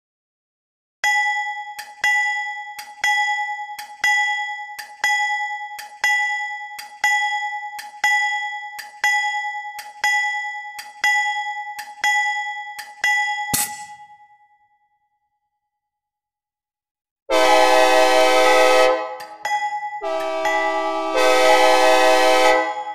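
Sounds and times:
synthesized locomotive bell ringing: 1.0s - 14.7s, 18.0s - 22.9s.

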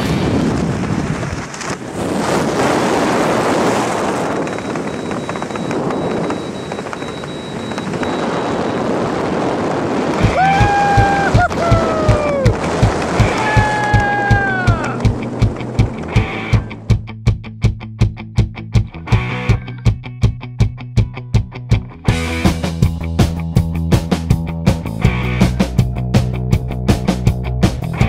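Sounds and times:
wind rushing over microphone: 0.0s - 17.0s
music with steady beat: 15.1s - 28.0s.

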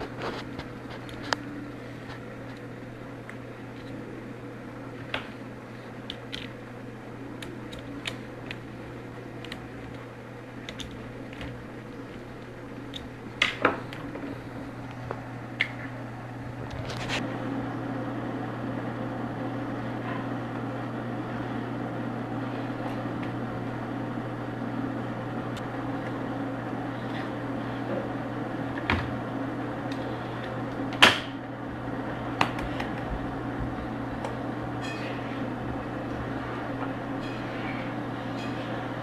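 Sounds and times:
low mechanical hum: 0.0s - 39.0s.

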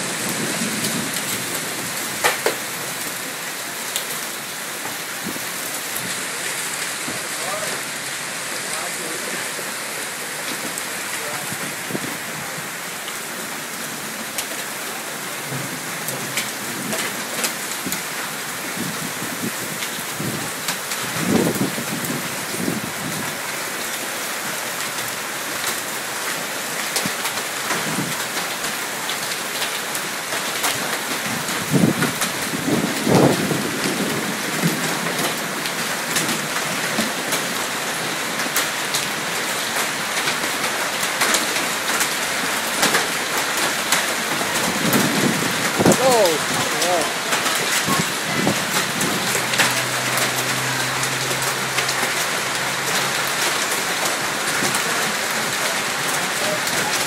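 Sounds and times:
hail and rain pelting: 0.0s - 57.0s
hailstones ticking: 0.2s - 3.2s, 25.6s - 57.0s.

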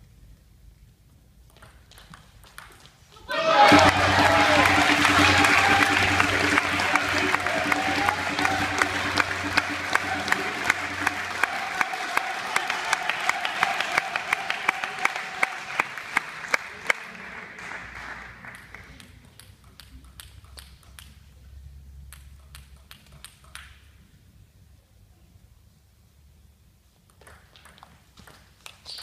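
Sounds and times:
crowd clapping in unison: 1.9s - 21.1s
crowd noise: 3.3s - 17.2s.

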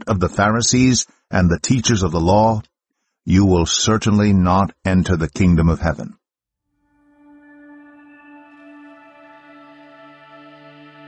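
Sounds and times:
soft ambient music: 6.8s - 11.0s.

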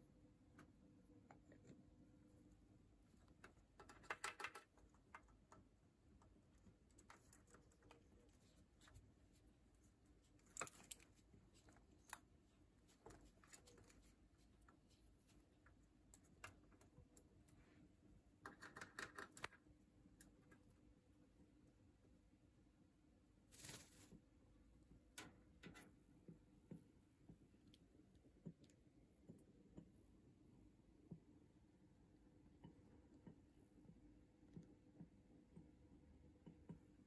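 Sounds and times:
beak clicks and crunches: 10.2s - 16.9s.

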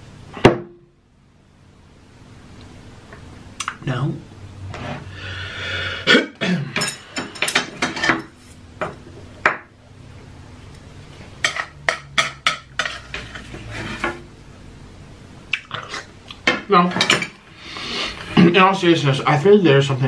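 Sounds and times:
lip smacks and clicks: 3.6s - 3.8s, 15.5s - 16.4s.

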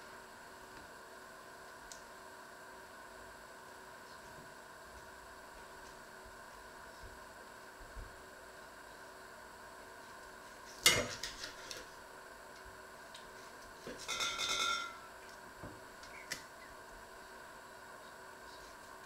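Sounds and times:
ringing clatter: 14.0s - 15.0s.

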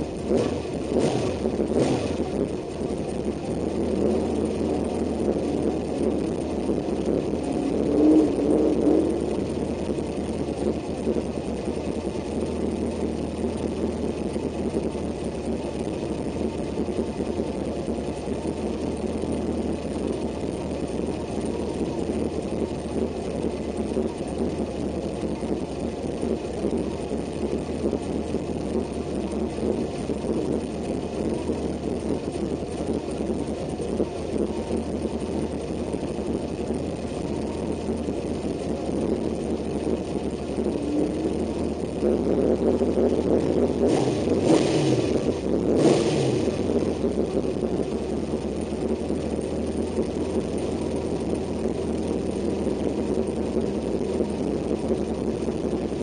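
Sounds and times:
truck engine idling: 0.0s - 56.0s.

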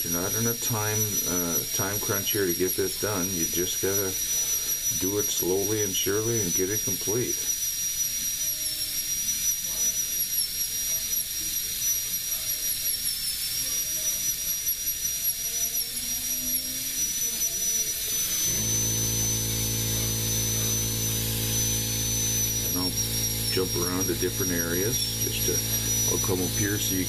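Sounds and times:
rotary carving tool whining: 0.0s - 27.0s
low steady hum: 18.4s - 27.0s.

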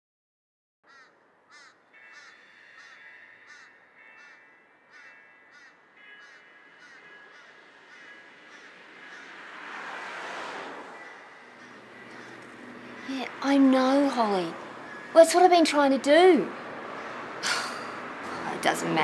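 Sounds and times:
crow cawing: 0.9s - 13.4s, 16.9s - 18.0s
high ringing tone: 11.0s - 17.1s.

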